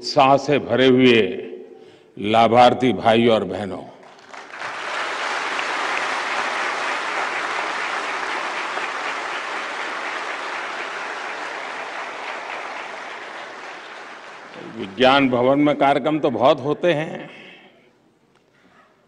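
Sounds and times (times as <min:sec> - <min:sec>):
audience applauding: 0:04.0 - 0:15.6.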